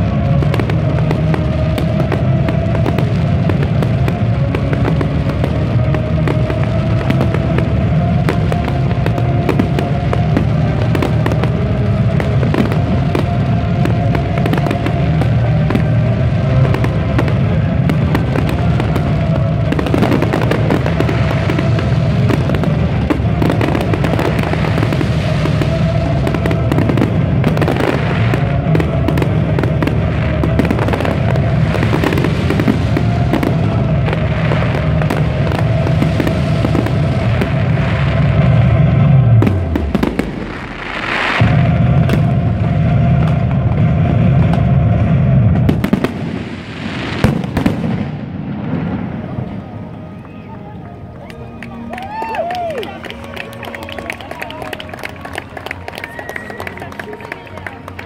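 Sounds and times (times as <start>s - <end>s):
fireworks bangs pops and crackles: 0.0s - 50.5s, 51.6s - 58.0s
music with held note: 48.9s - 58.0s.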